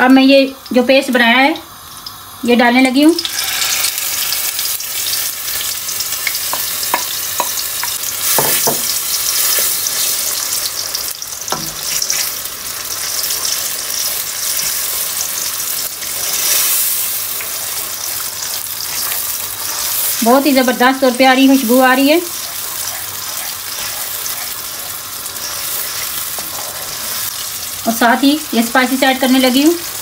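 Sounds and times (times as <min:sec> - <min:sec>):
paste sizzling in frying pan: 0:00.0 - 0:30.0
utensils tapping pan: 0:06.2 - 0:10.1
wooden spoon scraping pan: 0:22.3 - 0:27.4.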